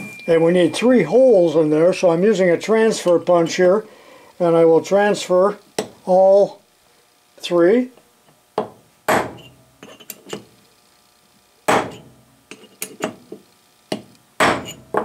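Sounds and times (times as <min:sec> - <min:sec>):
hammer striking metal punch: 0:08.6 - 0:09.6, 0:11.7 - 0:12.2, 0:13.9 - 0:15.0.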